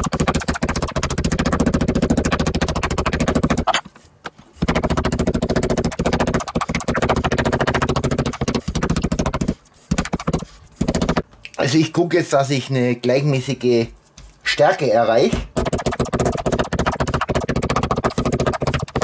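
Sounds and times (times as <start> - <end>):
meat mallet pounding on board: 0.0 - 3.7, 4.6 - 11.2, 15.4 - 19.0.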